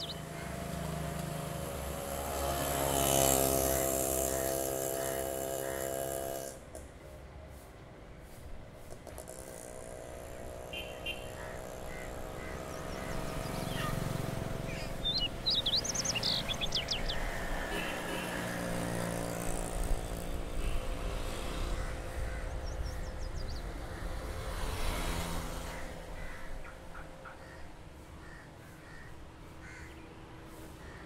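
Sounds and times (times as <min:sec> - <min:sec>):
birds chirping: 0:00.0 - 0:02.4, 0:10.2 - 0:20.9, 0:21.7 - 0:24.2
road traffic hum: 0:00.0 - 0:31.0.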